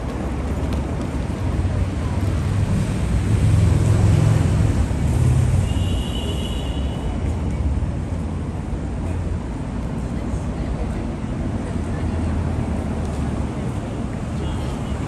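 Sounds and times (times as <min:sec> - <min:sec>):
vehicle passing: 0:00.0 - 0:05.6
street traffic rumble: 0:00.0 - 0:15.0.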